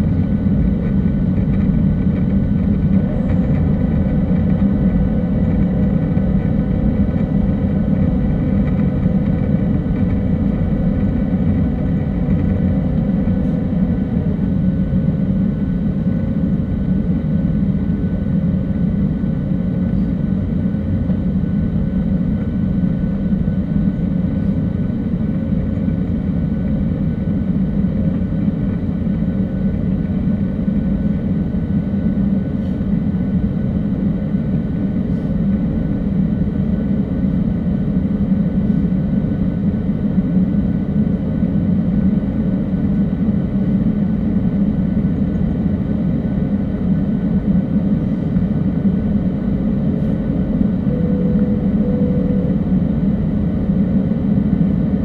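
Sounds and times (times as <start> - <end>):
jet engines rumbling: 0.0 - 55.0
faint whining tones: 1.4 - 15.9, 47.8 - 54.7.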